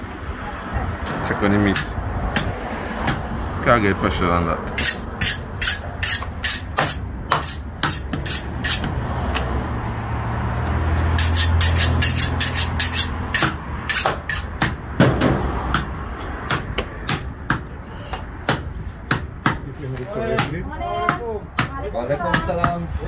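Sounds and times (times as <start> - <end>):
cleavers chopping meat and bone: 1.6 - 3.3, 4.7 - 9.5, 11.1 - 23.0.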